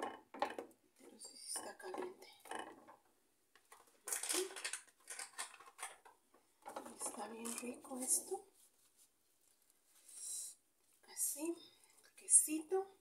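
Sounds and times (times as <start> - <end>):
kitchen utensils clinking and scraping: 4.0 - 6.1, 6.7 - 8.4.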